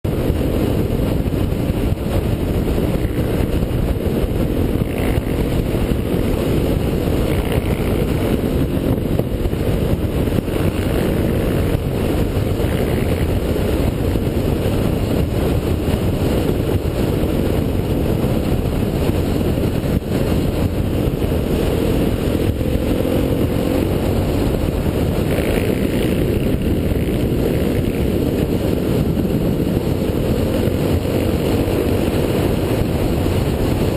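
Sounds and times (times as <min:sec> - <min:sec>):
motorcycle engine cruising: 0:00.0 - 0:33.9
wind rush on microphone: 0:00.0 - 0:33.9.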